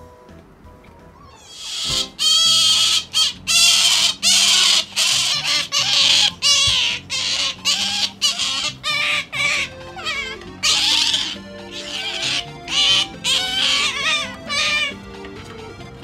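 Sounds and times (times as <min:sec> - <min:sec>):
faint background music: 0:00.0 - 0:16.0
otter squeaking calls: 0:01.1 - 0:16.0.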